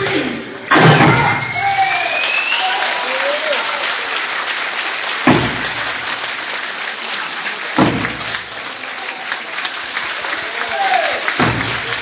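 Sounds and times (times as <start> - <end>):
audience applauding: 1.4 - 12.0
low drum beats: 5.3 - 6.0.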